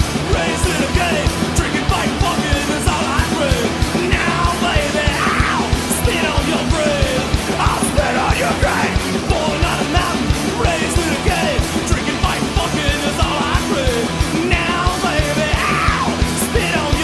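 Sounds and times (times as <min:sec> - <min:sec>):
fast steady drumbeat: 0:00.0 - 0:17.0
punk rock song: 0:00.0 - 0:17.0
shouted vocals: 0:00.0 - 0:17.0.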